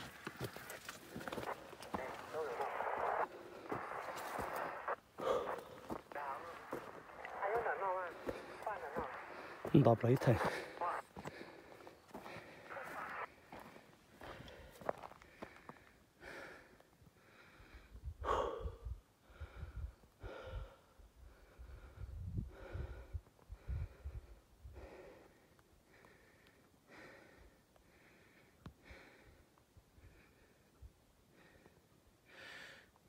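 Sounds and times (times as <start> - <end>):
person breathing fast: 3.2 - 6.0, 10.3 - 32.9
wind rumbling on microphone: 17.9 - 20.6, 21.4 - 24.8.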